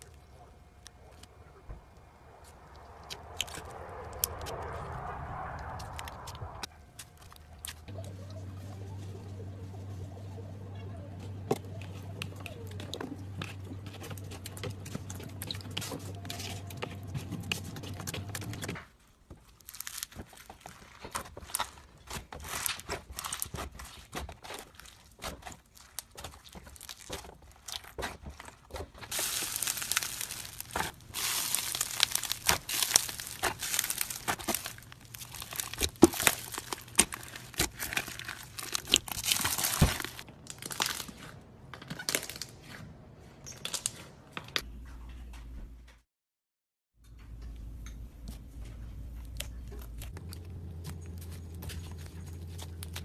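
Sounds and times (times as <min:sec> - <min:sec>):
steady low hum: 0:00.0 - 0:18.6
slime stirred in a bowl: 0:11.8 - 0:41.3, 0:49.2 - 0:53.0
slime squishing and popping: 0:19.5 - 0:41.3.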